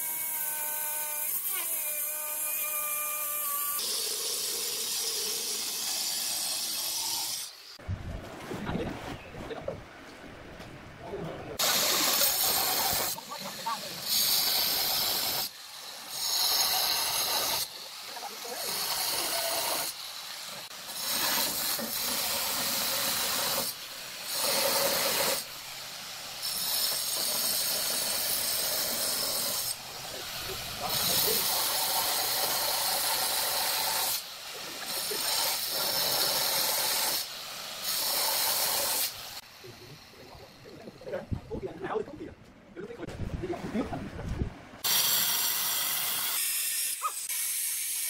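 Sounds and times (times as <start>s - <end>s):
angle grinder grinding stone: 0.0s - 7.8s, 11.6s - 25.6s, 26.4s - 41.1s.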